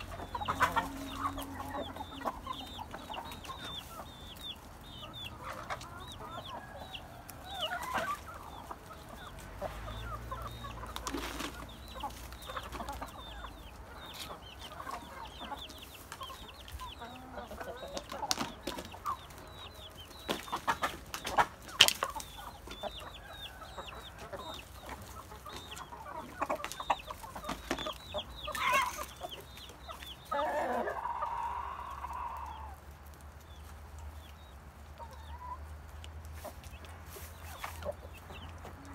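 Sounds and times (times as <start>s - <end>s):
chickens clucking: 0.0s - 38.9s
long loud chicken call: 28.5s - 29.1s, 30.3s - 32.8s.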